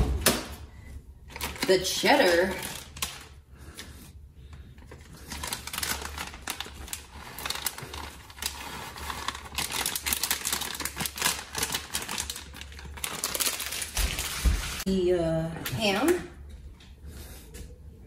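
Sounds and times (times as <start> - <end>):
plastic bag crinkling: 1.3 - 3.4, 4.8 - 14.9.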